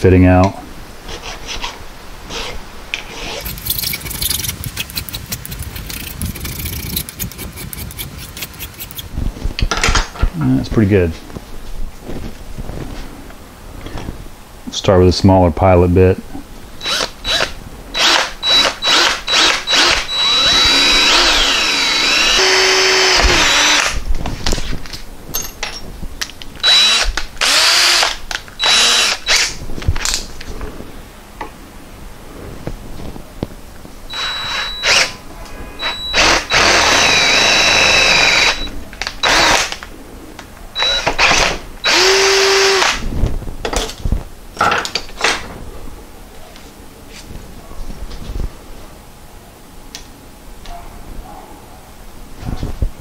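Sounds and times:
cordless drill boring into metal: 0:16.8 - 0:24.0, 0:26.6 - 0:29.5, 0:34.1 - 0:35.2, 0:35.8 - 0:39.8, 0:40.8 - 0:43.0.

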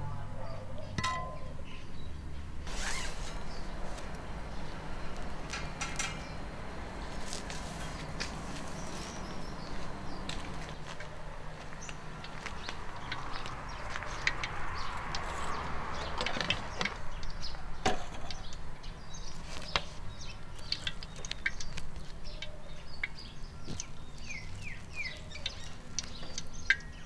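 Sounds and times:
small knocks and clicks: 0:05.1 - 0:06.5, 0:20.6 - 0:24.3.

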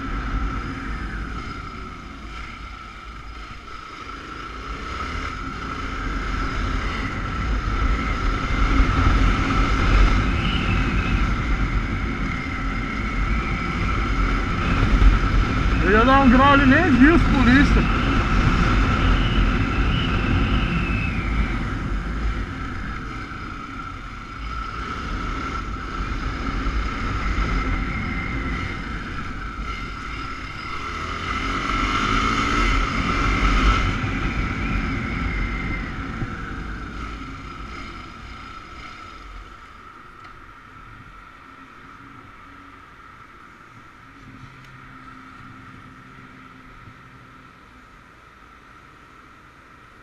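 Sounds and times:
wind rush on microphone: 0:04.8 - 0:40.0.

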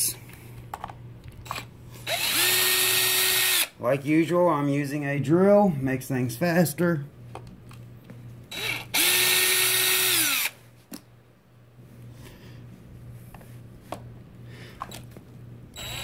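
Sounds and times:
low steady hum: 0:00.0 - 0:16.0
cordless drill whining: 0:01.5 - 0:03.7, 0:08.5 - 0:10.6, 0:15.7 - 0:16.0.

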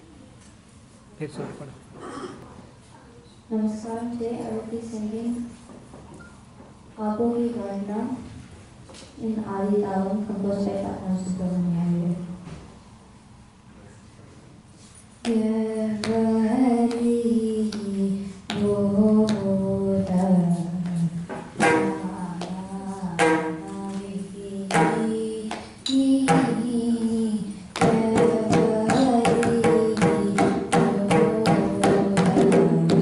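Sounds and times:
girl singing: 0:15.2 - 0:33.0
hand drum strokes: 0:18.6 - 0:33.0.

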